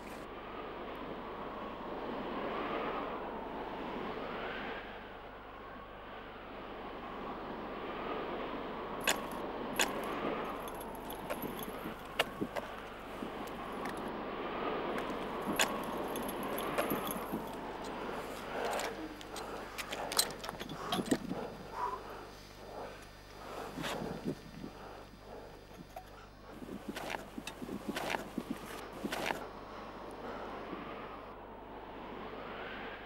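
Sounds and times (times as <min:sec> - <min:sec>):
metal climbing gear clinking: 0:09.0 - 0:14.0, 0:15.0 - 0:21.6, 0:23.6 - 0:24.4, 0:25.3 - 0:29.4.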